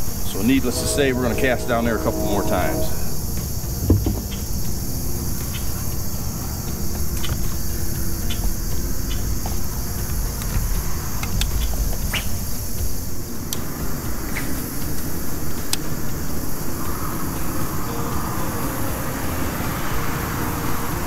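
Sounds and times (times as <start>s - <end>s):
crickets and insects chirring: 0.0s - 21.0s
low rumble: 0.3s - 4.6s.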